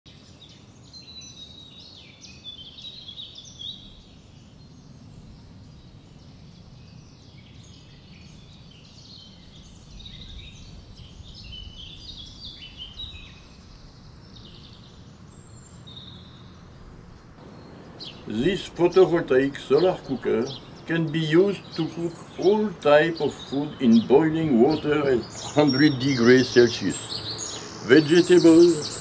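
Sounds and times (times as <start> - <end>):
small birds chirping: 0.1 - 29.0
low outdoor rumble: 16.7 - 29.0.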